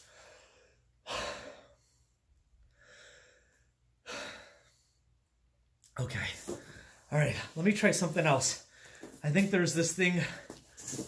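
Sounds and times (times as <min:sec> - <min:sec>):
man breathing hard: 0:00.0 - 0:05.2, 0:08.6 - 0:09.2.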